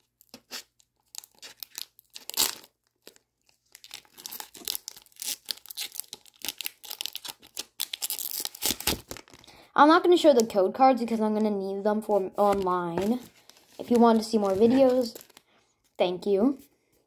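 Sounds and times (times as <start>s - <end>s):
foil wrapper crinkling and tearing: 0.0s - 9.6s, 12.6s - 15.5s.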